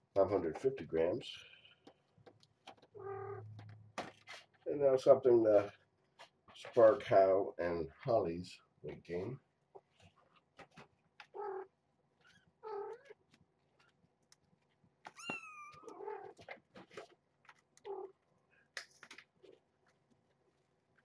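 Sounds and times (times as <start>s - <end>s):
faint clicks and taps: 1.7s - 4.6s, 8.9s - 11.4s, 12.2s - 21.0s
cat and kittens meowing: 3.0s - 3.6s, 11.2s - 13.2s, 15.1s - 16.5s, 17.8s - 18.2s.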